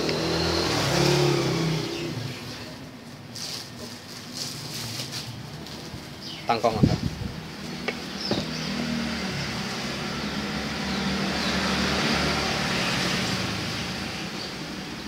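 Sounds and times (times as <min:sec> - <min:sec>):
passing road vehicle engine hum: 0:07.1 - 0:15.0.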